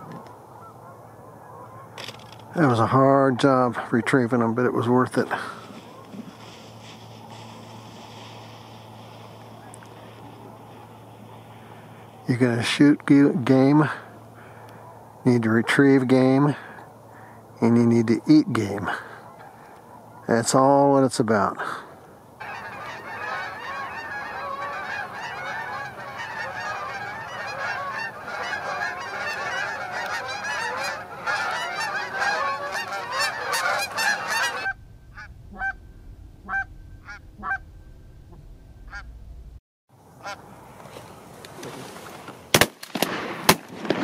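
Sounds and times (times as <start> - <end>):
geese honking: 0.0 - 39.1, 40.1 - 41.3
sharp cracks: 42.2 - 44.0.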